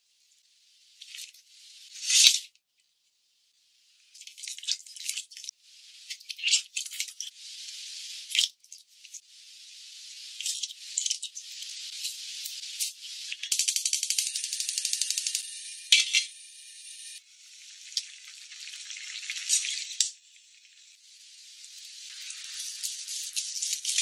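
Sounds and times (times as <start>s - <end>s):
liquid pouring hiss: 17.0s - 24.0s.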